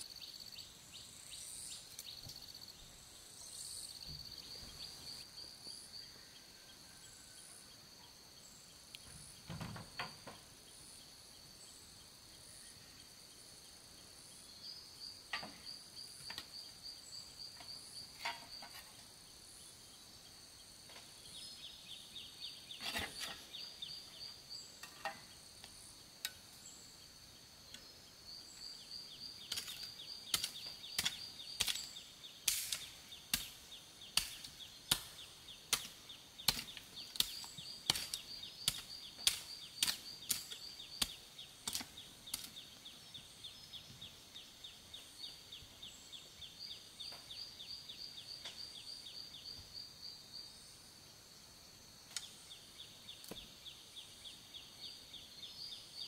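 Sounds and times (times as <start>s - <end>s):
insect chirping: 0.0s - 56.0s
sharp chopping strikes: 34.2s - 42.5s.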